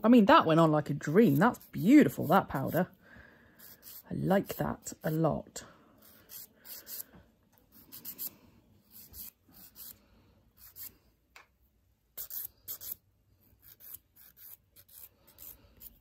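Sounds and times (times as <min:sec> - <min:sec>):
nail file rasping on nails: 0:01.1 - 0:02.9, 0:03.6 - 0:05.2, 0:06.0 - 0:07.1, 0:07.7 - 0:10.0, 0:10.6 - 0:11.0, 0:12.2 - 0:16.0.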